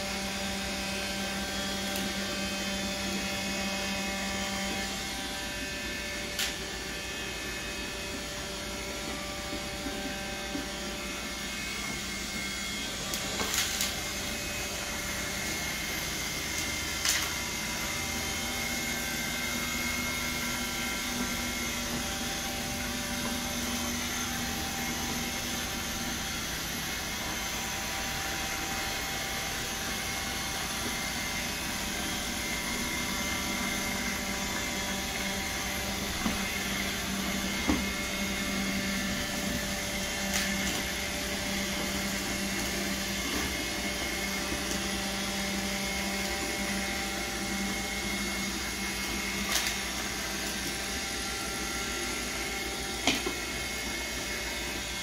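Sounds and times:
robot vacuum whirring: 0.0s - 55.0s.

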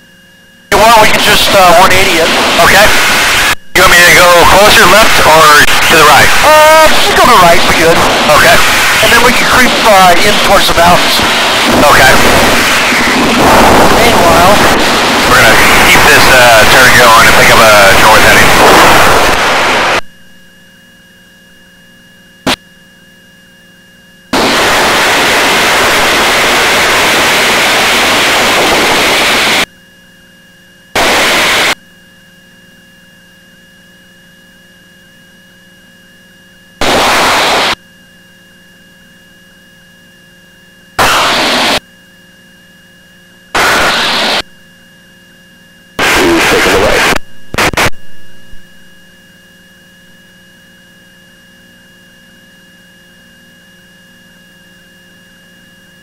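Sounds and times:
low electrical hum: 0.0s - 41.0s, 41.8s - 56.0s
radio static bursts: 0.7s - 20.0s, 24.4s - 29.7s, 31.0s - 31.8s, 36.8s - 37.8s, 41.0s - 41.8s, 43.5s - 44.5s, 46.0s - 48.6s.

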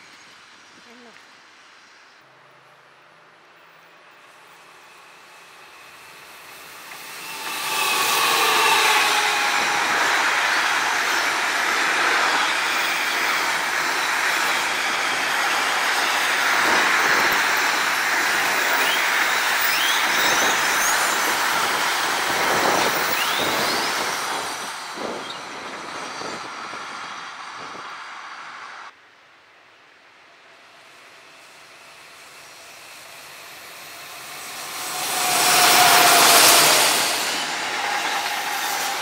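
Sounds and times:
freight train rumbling past: 2.3s - 28.9s, 30.2s - 39.0s
wheel squeals: 4.5s - 26.9s, 32.3s - 39.0s.

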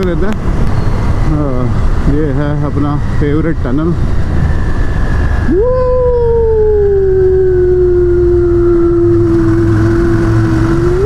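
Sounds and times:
motorcycle rumble: 0.0s - 11.0s
wind: 0.0s - 11.0s
man howling: 5.5s - 11.0s.

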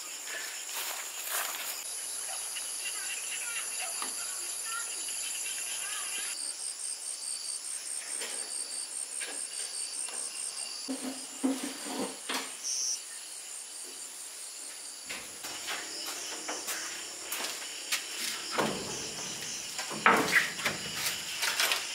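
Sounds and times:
insects chirping: 0.0s - 21.9s
knocks and clatters: 15.1s - 21.9s.

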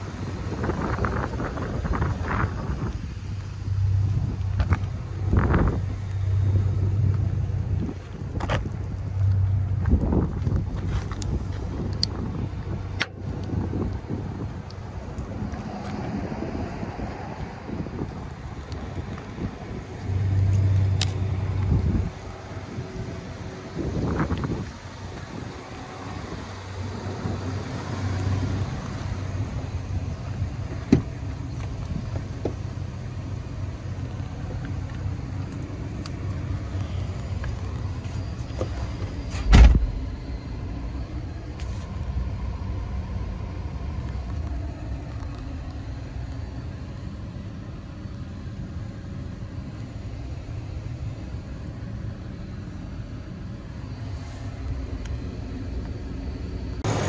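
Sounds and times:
diesel truck engine idling: 0.0s - 57.0s
truck door shutting: 38.5s - 40.0s.

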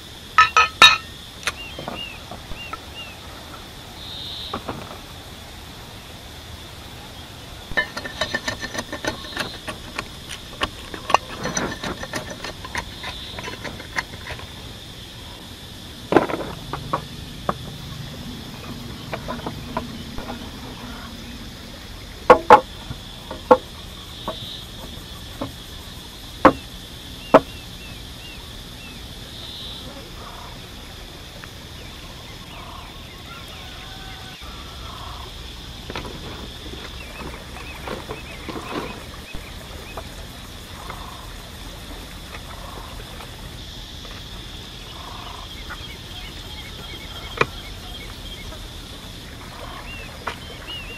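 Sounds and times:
wooden planks knocking and clattering: 7.7s - 14.6s, 16.1s - 17.9s, 18.5s - 20.5s, 22.3s - 25.6s.

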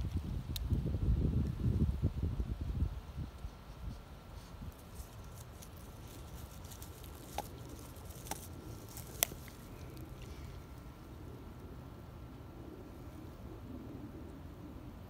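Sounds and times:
dog crunching on stick: 4.7s - 11.0s
stick cracking: 4.8s - 10.3s.

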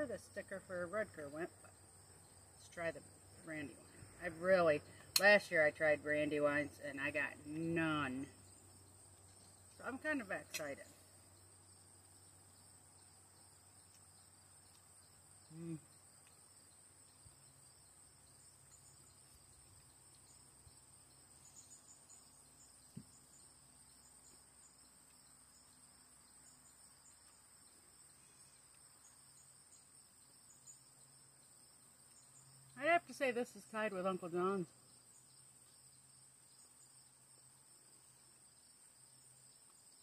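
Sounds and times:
crickets trilling: 0.0s - 40.0s
person humming: 15.5s - 15.9s.

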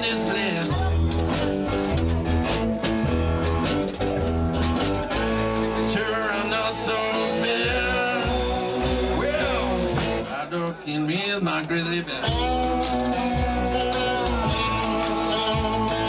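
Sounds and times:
blues-rock band playing: 0.0s - 10.5s, 11.5s - 16.0s
drum hits: 0.7s - 5.4s
person singing: 5.5s - 16.0s.

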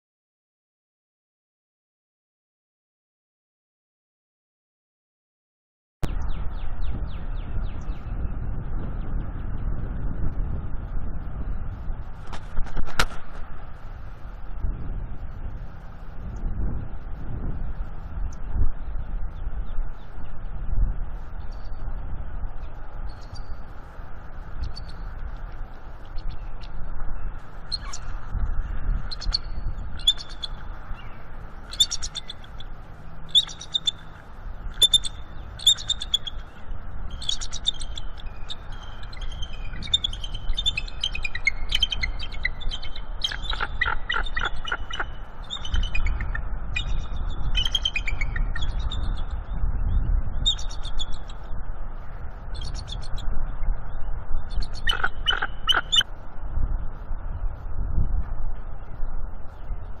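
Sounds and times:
eagles chittering calls: 27.6s - 28.3s, 29.0s - 30.8s, 31.6s - 49.3s, 54.5s - 56.0s.

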